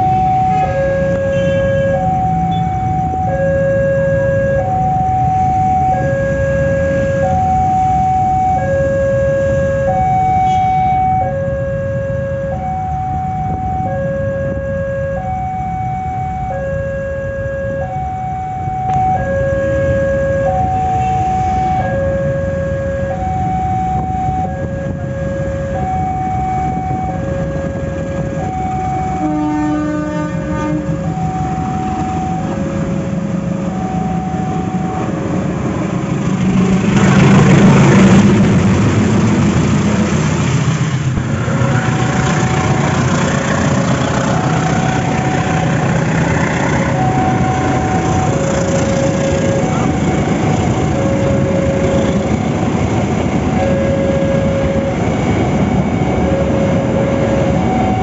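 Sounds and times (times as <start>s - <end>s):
two-tone level crossing alarm: 0.0s - 35.6s, 42.6s - 58.0s
diesel locomotive engine rumble: 0.0s - 58.0s.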